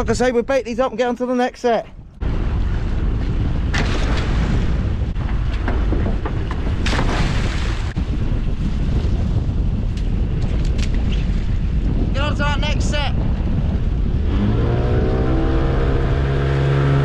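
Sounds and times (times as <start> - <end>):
wind buffeting microphone: 0.0 - 17.0
water splashes: 2.2 - 9.4
outboard boat engine: 13.8 - 17.0.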